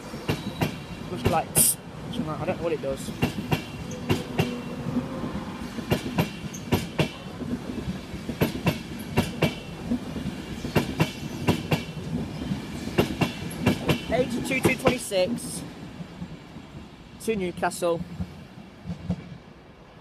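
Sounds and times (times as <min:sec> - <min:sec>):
steady train rumble: 0:00.0 - 0:20.0
train wheels clacking over rail joint: 0:03.2 - 0:04.6, 0:05.8 - 0:07.2, 0:08.3 - 0:12.0, 0:12.9 - 0:15.1.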